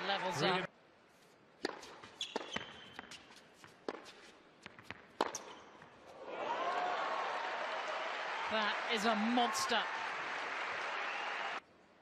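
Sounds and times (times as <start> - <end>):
rackets hitting tennis ball: 1.6 - 5.9
shoe squeak: 1.8 - 4.3, 5.2 - 5.9
crowd applause: 6.2 - 11.6.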